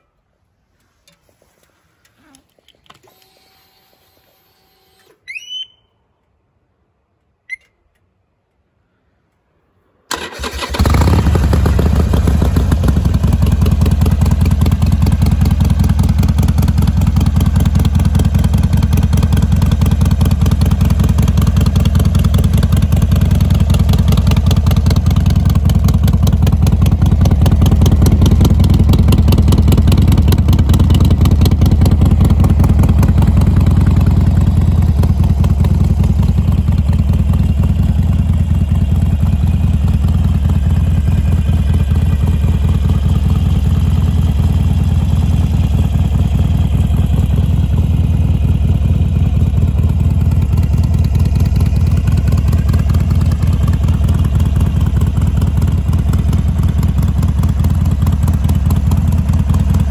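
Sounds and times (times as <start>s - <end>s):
motorcycle electric starter: 10.1s - 11.4s
motorcycle engine idling: 10.3s - 59.9s.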